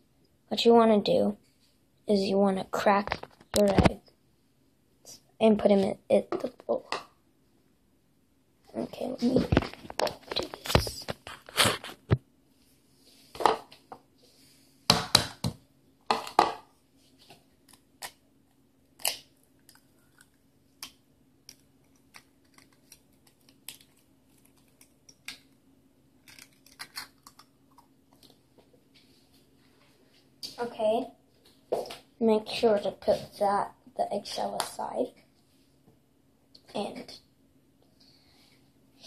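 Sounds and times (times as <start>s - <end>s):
low steady hum: 0.0s - 39.0s
eggshell cracking: 26.2s - 27.9s.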